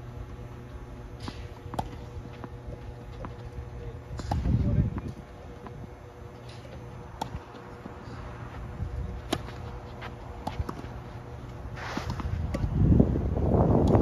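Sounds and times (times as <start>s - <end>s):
shoes scuffing on court: 1.2s - 12.7s
wind rumble on microphone: 4.0s - 5.9s, 8.4s - 9.8s, 12.0s - 14.0s
tennis ball hits: 9.2s - 10.9s.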